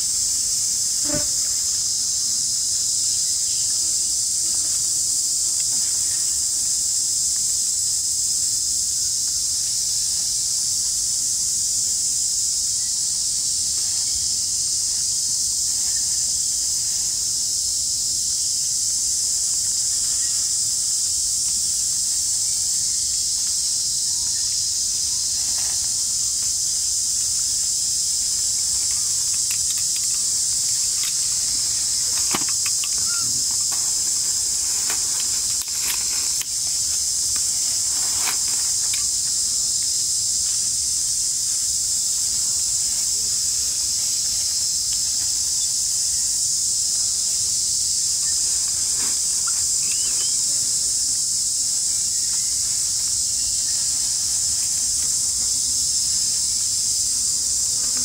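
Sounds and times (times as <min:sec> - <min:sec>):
insect chorus droning: 0:00.0 - 0:58.0.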